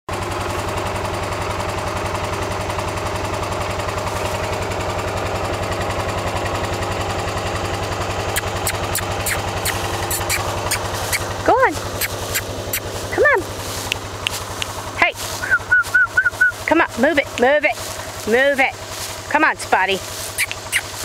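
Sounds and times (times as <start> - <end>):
engine idling: 0.1 - 21.0
short sharp high clicks: 8.3 - 11.3, 11.9 - 12.9, 20.3 - 21.0.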